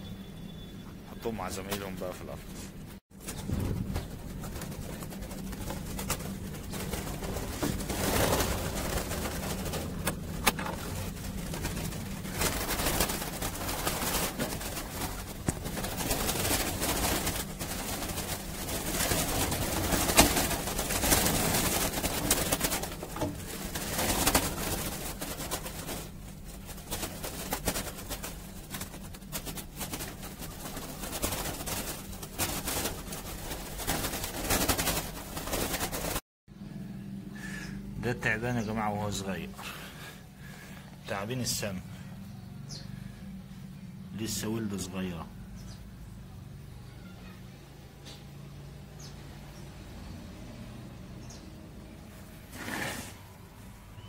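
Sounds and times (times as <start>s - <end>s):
rustling: 1.5s - 36.2s, 52.1s - 54.0s.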